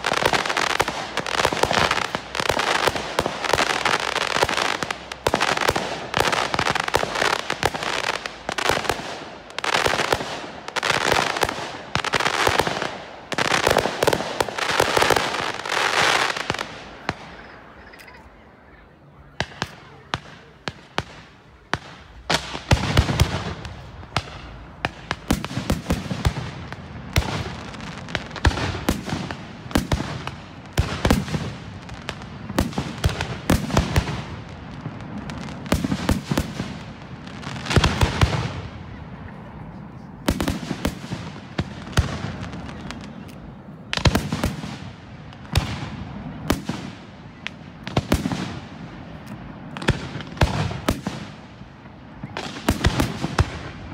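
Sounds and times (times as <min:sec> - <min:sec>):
fireworks crackling: 0:00.0 - 0:53.9.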